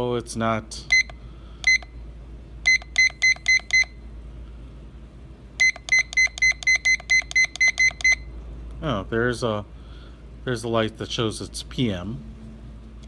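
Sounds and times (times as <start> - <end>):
alarm clock beeping: 0.9 - 1.9, 2.7 - 4.0, 5.6 - 8.2.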